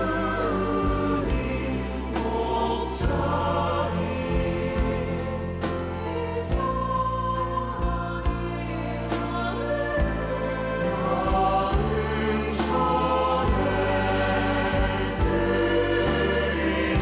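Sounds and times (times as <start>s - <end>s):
keyboard accompaniment: 0.0s - 17.0s
low bass line: 0.0s - 17.0s
voices singing worship song: 0.0s - 17.0s.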